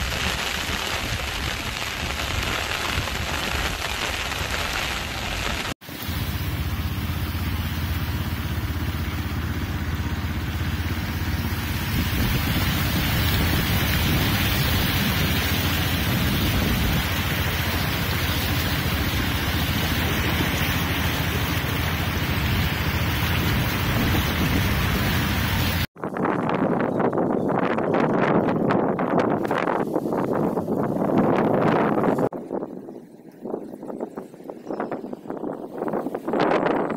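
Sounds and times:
rain: 0.0s - 25.9s
wind: 0.0s - 36.9s
wind rumble on microphone: 7.0s - 36.9s.

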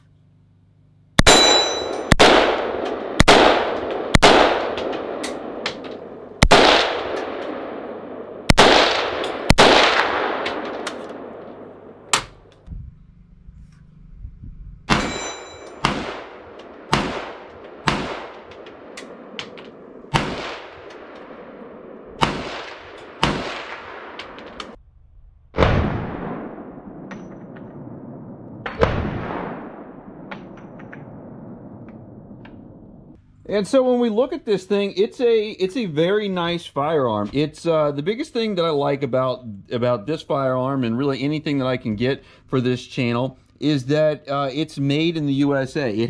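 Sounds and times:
gunshots with long echo: 1.2s - 12.5s, 14.9s - 24.8s, 25.6s - 33.2s.

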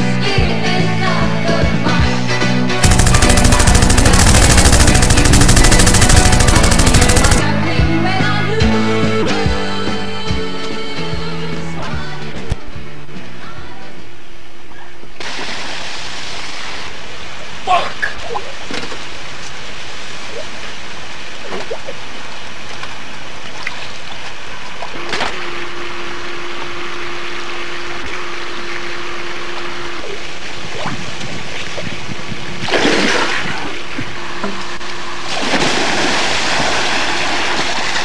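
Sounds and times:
pool water splashing: 35.2s - 38.0s.

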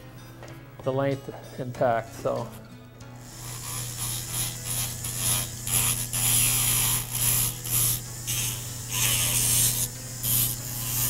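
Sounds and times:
rotary grinder grinding bone: 3.2s - 11.0s.

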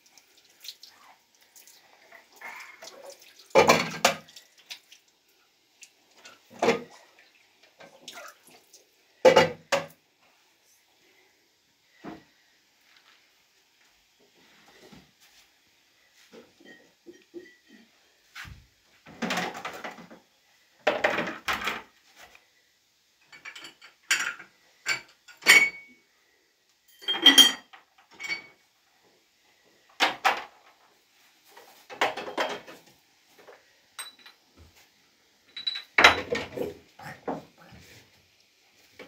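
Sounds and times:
kitchenware knocks and clinks: 3.6s - 4.3s, 9.2s - 9.9s, 16.5s - 17.9s, 19.1s - 20.2s, 20.8s - 21.9s, 23.3s - 26.0s, 26.9s - 28.6s, 31.9s - 32.8s, 34.0s - 34.4s, 35.5s - 36.7s.

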